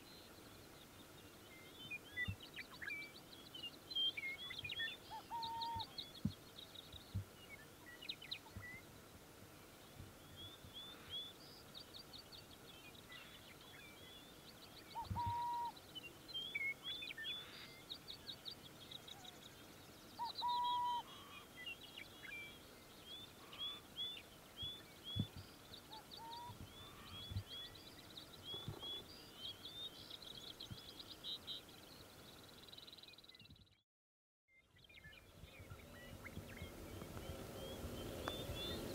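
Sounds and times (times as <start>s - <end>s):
songbirds trilling and chirping: 0.0s - 33.8s, 34.5s - 38.9s
owls calling: 5.1s - 6.0s, 15.0s - 15.8s, 20.2s - 21.4s.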